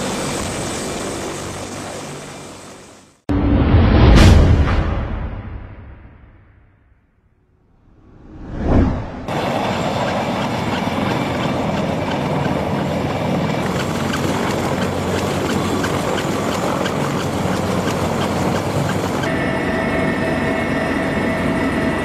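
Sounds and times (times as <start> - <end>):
helicopter running on the ground: 0.0 - 3.2, 9.1 - 22.0
high turbine whine: 7.8 - 22.0.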